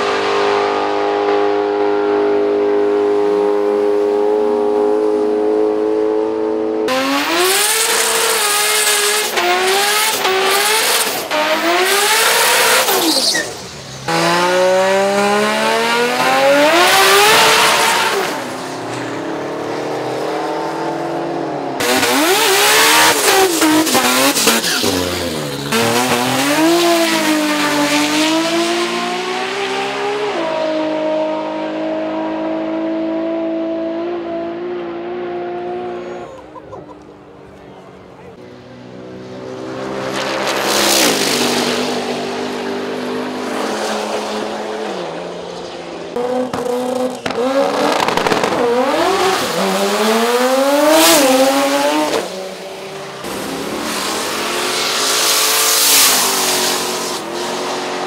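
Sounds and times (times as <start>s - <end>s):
car accelerating away: 0.0s - 58.0s
race car engines revving: 0.0s - 58.0s
tyre squeal: 12.8s - 14.1s, 24.3s - 25.9s.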